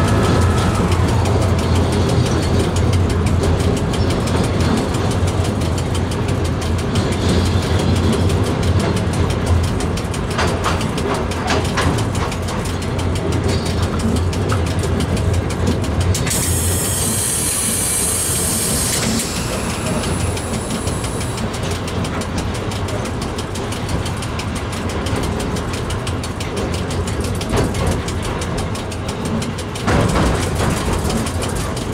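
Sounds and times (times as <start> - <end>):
electric train rumble in tunnel: 0.0 - 31.9
wheels clattering on rails: 0.0 - 31.9
high hiss: 16.3 - 21.4.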